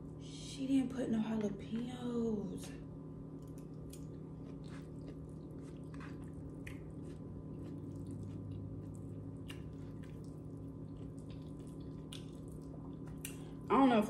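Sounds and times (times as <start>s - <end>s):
steady low hum: 0.0s - 14.0s
wet clicks and squishes of food: 1.3s - 2.0s, 3.3s - 13.6s.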